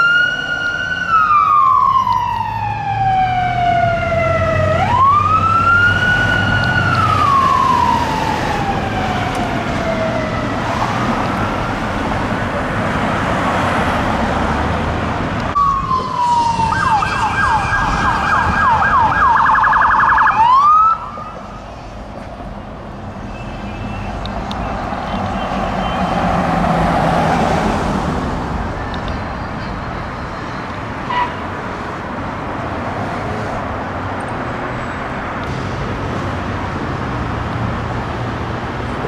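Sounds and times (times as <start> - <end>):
siren chirp: 0.0 - 10.6, 15.6 - 21.4
traffic noise: 0.0 - 39.0
electronic siren wailing: 15.6 - 21.4
siren fast yelp: 15.6 - 21.4.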